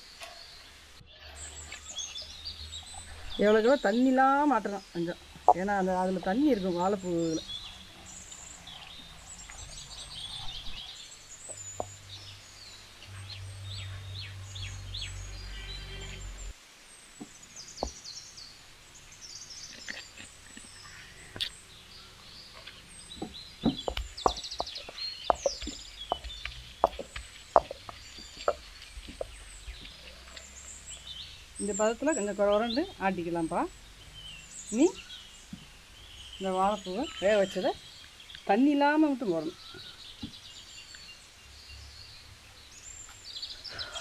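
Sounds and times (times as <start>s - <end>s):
small birds chirping: 0.0s - 44.0s
sharp knocks: 23.2s - 29.3s.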